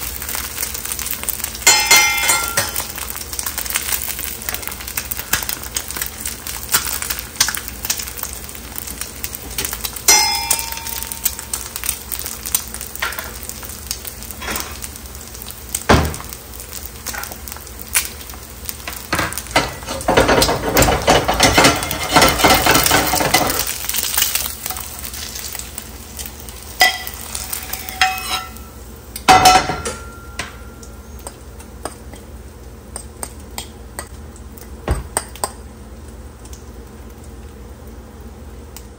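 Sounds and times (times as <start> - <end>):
eggs sizzling in oil: 0.0 - 38.9
fork clinking: 1.7 - 2.9, 10.1 - 11.4, 26.8 - 28.7
metal fork scraping a pan: 26.8 - 28.7.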